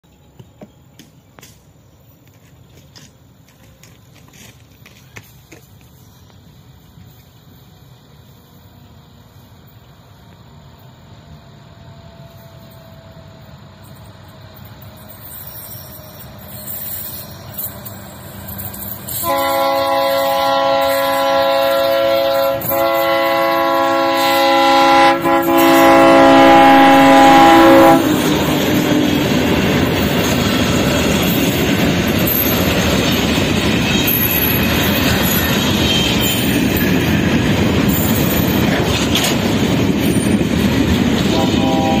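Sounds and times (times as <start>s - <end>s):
diesel locomotive passing: 0.0s - 42.0s
train wheels clattering over rails: 14.0s - 42.0s
locomotive horn: 19.1s - 28.9s, 41.2s - 42.0s.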